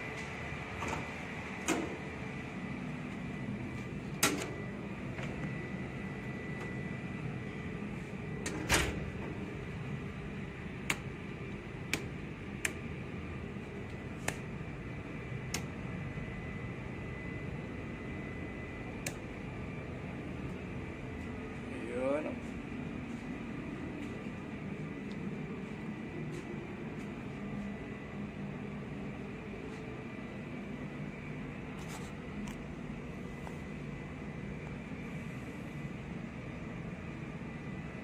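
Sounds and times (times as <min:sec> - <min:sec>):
high whine: 0:00.0 - 0:38.0
machinery and ventilation hum: 0:00.0 - 0:38.0.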